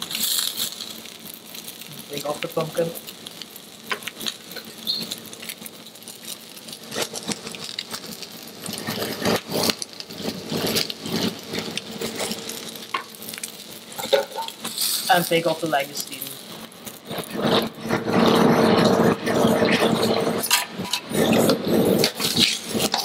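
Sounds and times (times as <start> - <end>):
food sizzling in hot fat: 0.0 - 23.0
metal utensils clinking and scraping: 13.9 - 15.5, 17.0 - 23.0.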